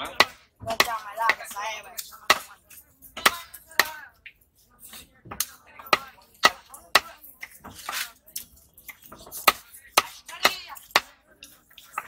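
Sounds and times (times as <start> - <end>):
cleaver chopping on wooden block: 2.3 - 2.5, 5.3 - 8.1, 9.2 - 11.2.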